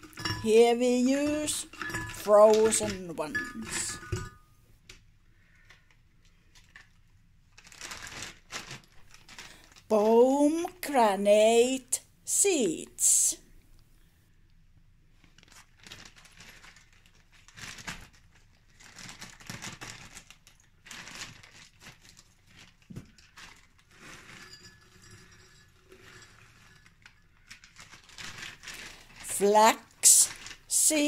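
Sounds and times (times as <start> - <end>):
plastic bag crinkling: 6.2 - 9.9, 15.2 - 24.4, 25.8 - 31.0.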